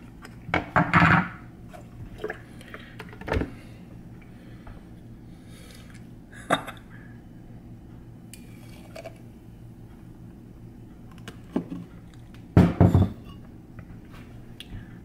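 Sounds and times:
steady low hum: 0:00.0 - 0:15.0
milkshake pouring: 0:08.4 - 0:09.2.

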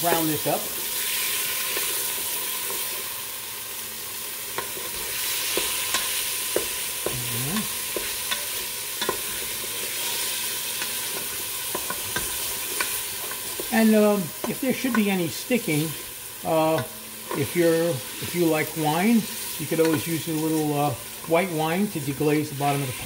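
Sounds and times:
chicken and onion sizzling in oil: 0:00.0 - 0:23.0.

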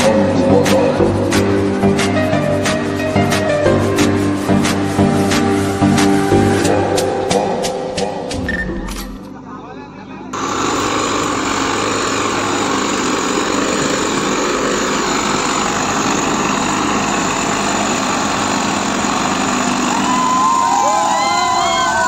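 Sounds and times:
tractor diesel engine under load: 0:10.4 - 0:21.1
onlookers cheering and shouting: 0:19.7 - 0:22.0.

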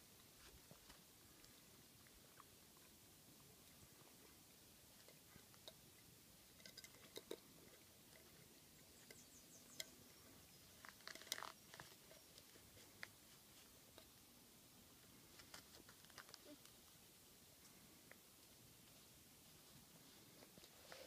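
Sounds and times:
animal eating from a tin: 0:00.6 - 0:14.2, 0:15.0 - 0:16.8.

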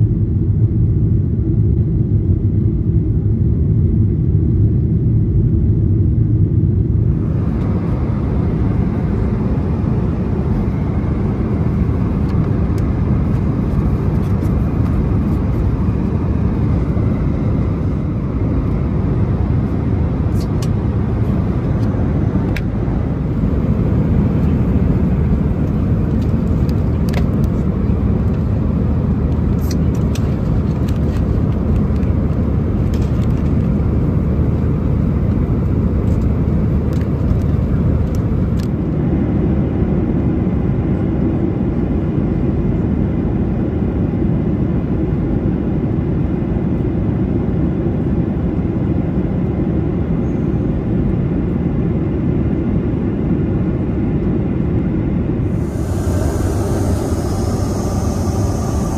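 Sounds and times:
jet engine rumble in cabin: 0:00.0 - 0:58.9
rushing airflow hiss: 0:55.4 - 0:58.9.

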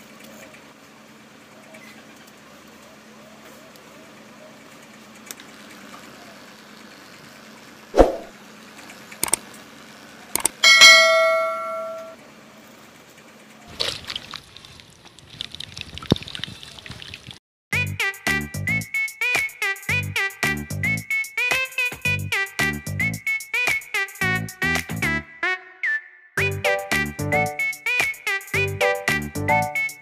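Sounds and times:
sharp clicks: 0:09.2 - 0:09.4, 0:10.4 - 0:10.6
bell-like ding: 0:10.6 - 0:12.2.

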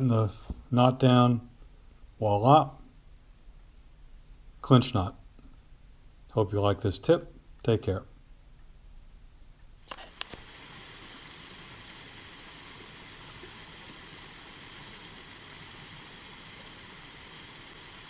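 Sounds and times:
sharp clicks: 0:09.8 - 0:10.4
stream water rushing over rocks: 0:10.1 - 0:18.0.

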